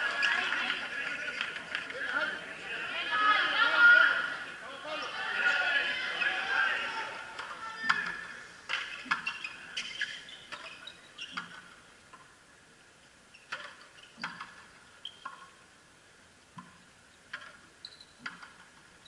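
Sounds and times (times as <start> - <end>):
shoe squeaks: 8.9 - 11.7, 15.0 - 15.3, 17.8 - 18.3.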